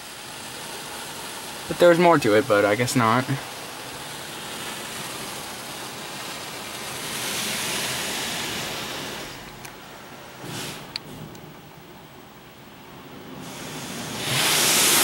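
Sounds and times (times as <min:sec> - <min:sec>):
water spray hitting car: 0:03.5 - 0:09.5, 0:10.4 - 0:11.3, 0:13.4 - 0:15.0.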